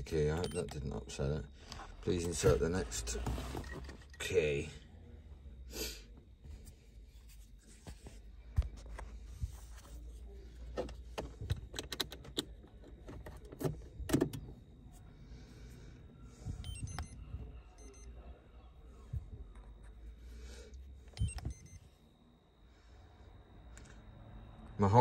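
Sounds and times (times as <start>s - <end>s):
key clicking in ignition: 11.2s - 14.6s
car keys jangling: 11.4s - 14.5s.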